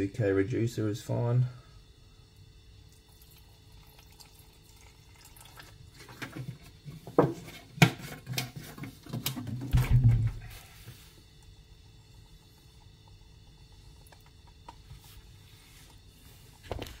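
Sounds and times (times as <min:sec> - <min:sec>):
liquid trickling into cup: 0:02.9 - 0:06.8.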